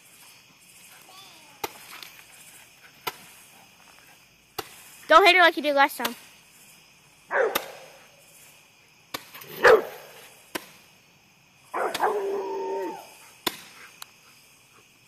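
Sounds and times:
firework pops: 1.1 - 3.4, 4.5 - 5.0, 7.5 - 8.0, 9.1 - 9.5, 10.2 - 10.9, 13.4 - 14.1
dog barking: 7.3 - 7.9, 9.5 - 10.1, 11.8 - 12.6.

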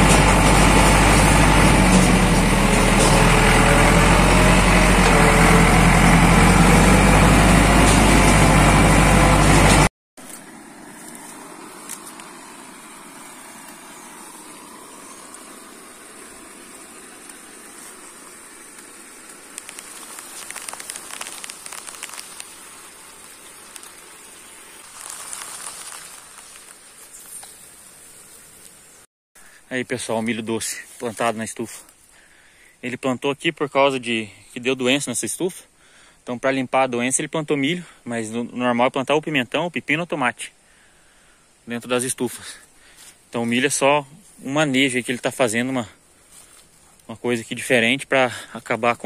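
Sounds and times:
vehicle engine running: 0.0 - 26.8
faint rustles: 17.2 - 24.1, 24.7 - 28.9, 46.0 - 47.1.

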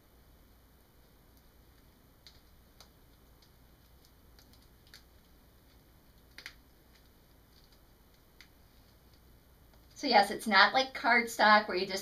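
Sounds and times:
small clicks and crackles of gel sheet: 1.0 - 10.0.

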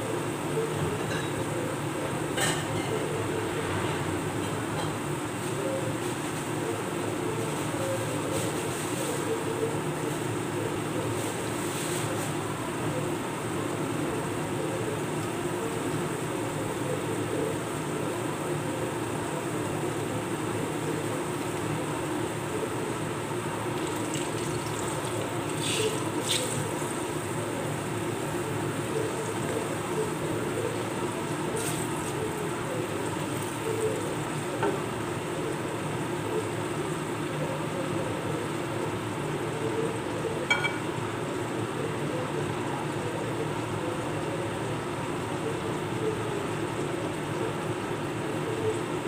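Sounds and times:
food sizzling in oil: 22.8 - 30.2.

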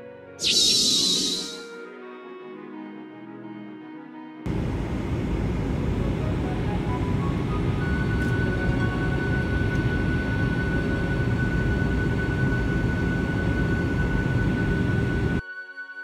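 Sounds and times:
thin high whine: 0.4 - 1.7, 8.0 - 15.4
aircraft cabin engine rumble: 4.5 - 15.4.

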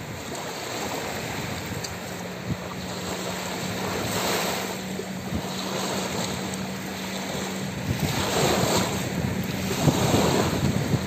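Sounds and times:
waves washing over pebbles: 0.0 - 11.0.

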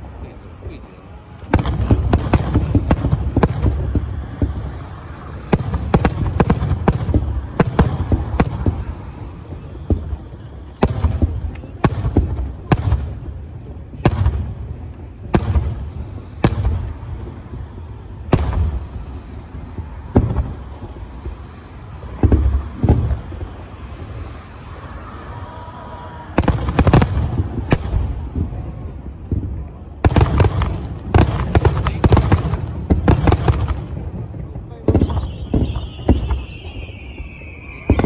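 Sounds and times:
firework shells bursting: 26.3 - 38.0.

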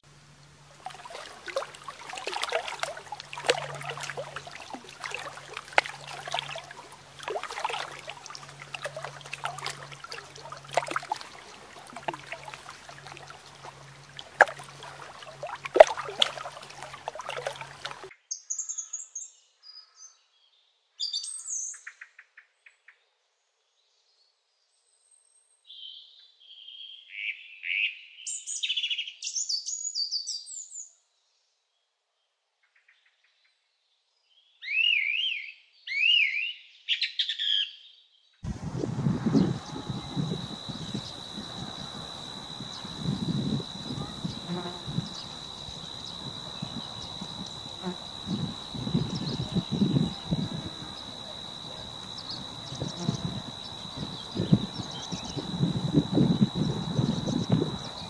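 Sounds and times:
water trickling and lapping: 0.5 - 18.1, 38.4 - 58.0
sharp clicks and splashes: 0.7 - 18.1, 38.5 - 58.0.

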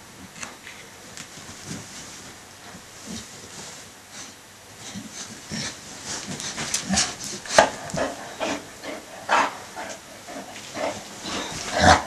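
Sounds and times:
dogs scuffling on fabric: 1.0 - 12.0
dog noises: 4.8 - 12.0.

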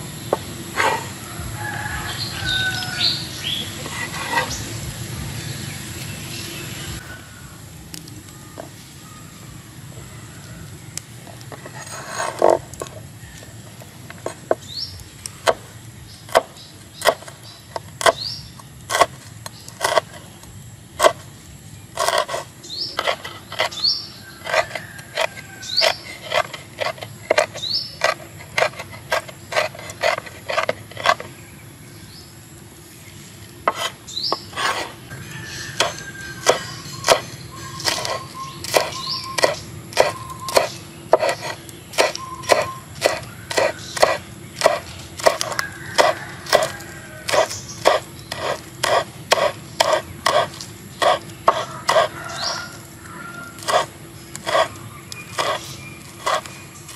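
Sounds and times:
knife chopping on wooden board: 16.3 - 18.3, 18.9 - 20.2, 21.0 - 21.2, 22.0 - 22.4, 24.4 - 31.3, 33.7 - 35.0, 35.7 - 52.6, 53.6 - 56.5.

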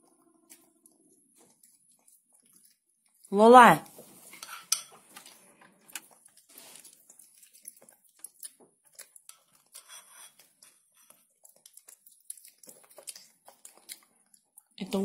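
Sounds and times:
monkey chewing wet food: 0.1 - 3.3, 5.0 - 9.8, 10.4 - 14.8
metal spoon scraping bowl: 4.2 - 5.1, 9.3 - 11.2.

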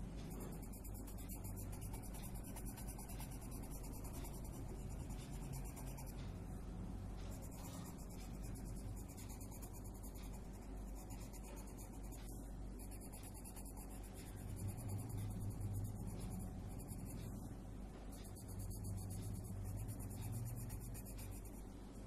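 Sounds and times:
steady low hum: 0.0 - 22.0
pencil rubbing on paper: 0.3 - 6.2, 7.2 - 17.3, 18.1 - 21.6.

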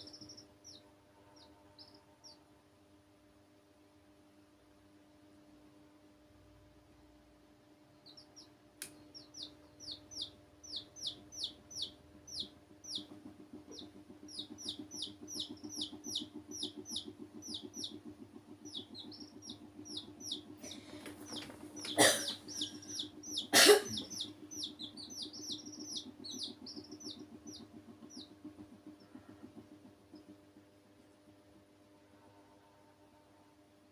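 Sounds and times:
chicks peeping: 0.0 - 2.4, 8.0 - 30.5
steady low hum: 0.0 - 33.9.

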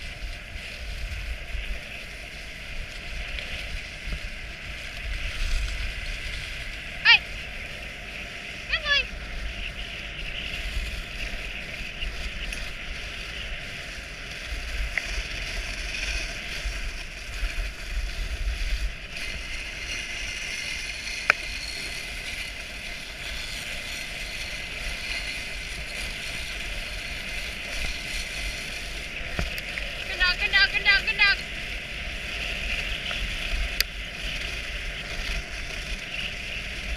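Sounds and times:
sled runners hissing over snow: 0.0 - 36.9
wind rumble on microphone: 0.0 - 36.9.

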